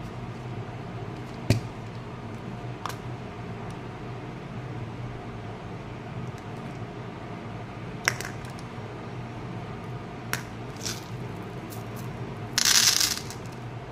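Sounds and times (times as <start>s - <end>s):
low background hum: 0.0s - 13.9s
plastic capsule clicks and rattles: 12.6s - 13.5s.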